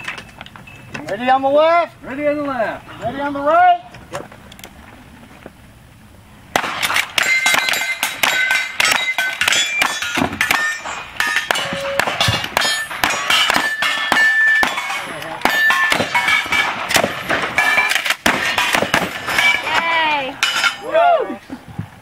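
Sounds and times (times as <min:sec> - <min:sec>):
steel targets clanging: 0:06.6 - 0:21.0.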